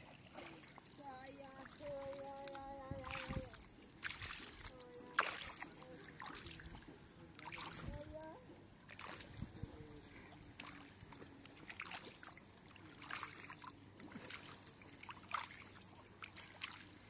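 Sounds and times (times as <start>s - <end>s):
feet wading through water: 0.0s - 17.0s.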